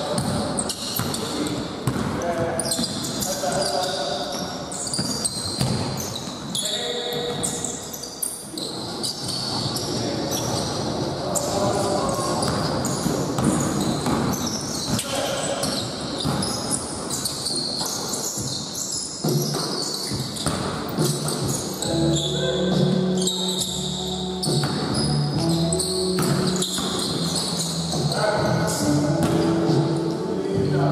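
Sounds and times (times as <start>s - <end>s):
shoes squeaking: 0.0s - 30.3s
ball bouncing on hard floor: 5.0s - 5.9s, 12.4s - 15.0s, 26.2s - 27.4s, 29.2s - 29.5s.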